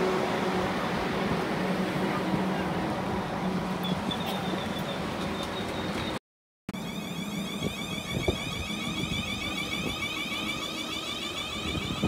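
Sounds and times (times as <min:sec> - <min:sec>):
low train rumble: 0:00.0 - 0:06.2
electric train motor whine: 0:06.8 - 0:12.0.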